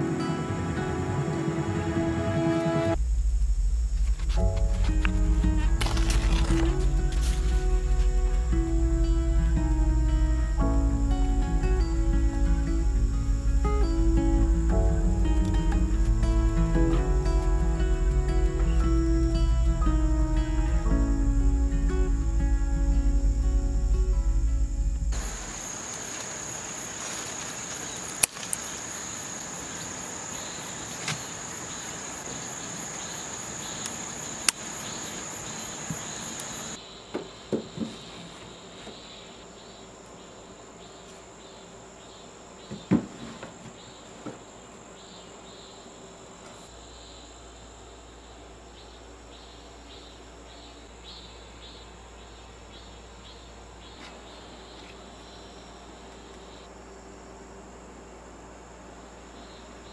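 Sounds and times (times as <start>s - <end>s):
crickets chirping: 0.0s - 59.9s
books set on wooden shelf: 37.1s - 39.0s, 42.7s - 44.4s.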